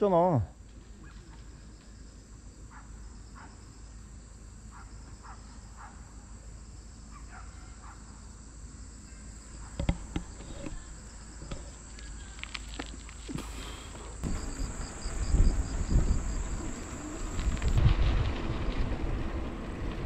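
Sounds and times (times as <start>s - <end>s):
insects trilling: 0.1s - 17.8s
sharp knocks and clicks: 9.8s - 10.7s.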